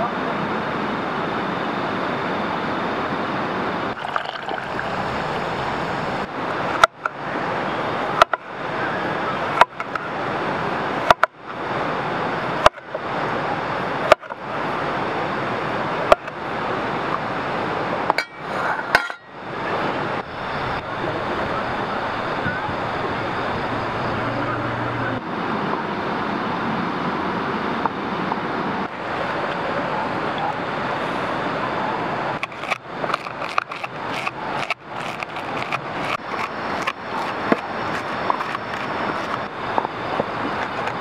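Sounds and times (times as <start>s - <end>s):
flowing river water: 0.0s - 41.0s.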